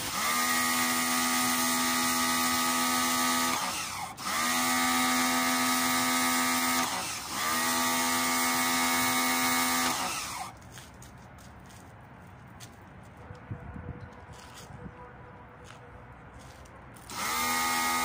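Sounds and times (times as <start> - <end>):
pressure washer humming: 0.0 - 10.5, 17.0 - 18.0.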